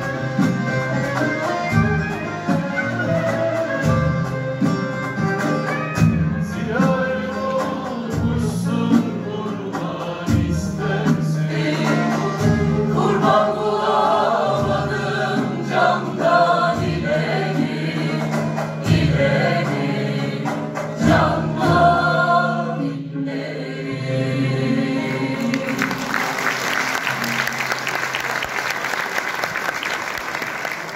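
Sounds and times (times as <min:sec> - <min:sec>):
cajon beat: 0:00.0 - 0:13.4
choir singing folk song: 0:06.0 - 0:27.2.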